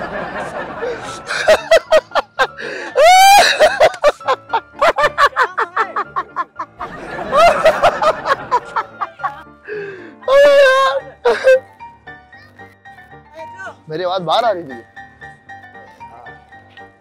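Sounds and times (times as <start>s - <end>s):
man laughing loudly: 0.0s - 9.4s.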